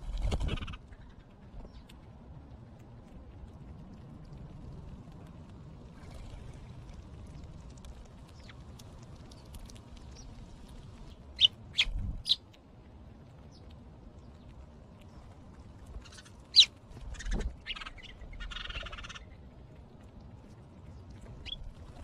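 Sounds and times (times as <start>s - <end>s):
wings fluttering: 0.0s - 1.9s, 5.8s - 12.4s, 15.2s - 19.3s.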